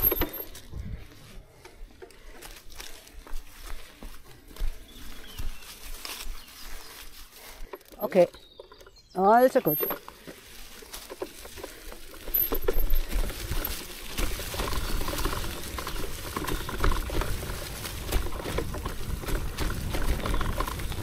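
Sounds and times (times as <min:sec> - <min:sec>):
small clicks and rattles: 0:00.0 - 0:00.7, 0:07.6 - 0:21.0
bike tyres crackling over leaves: 0:00.0 - 0:21.0.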